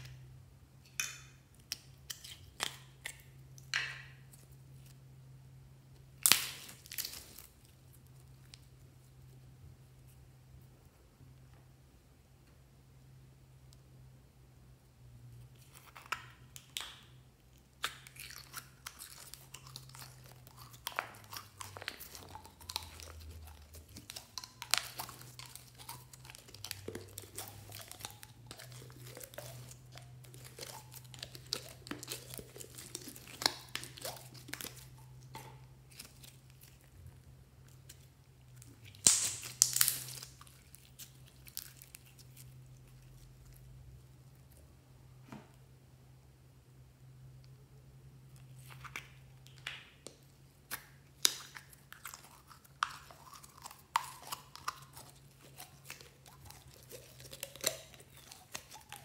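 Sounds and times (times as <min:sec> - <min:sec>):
faint low hum: 0:00.0 - 0:59.0
slime sticky clicks and crackles: 0:17.8 - 0:36.8, 0:37.8 - 0:42.5.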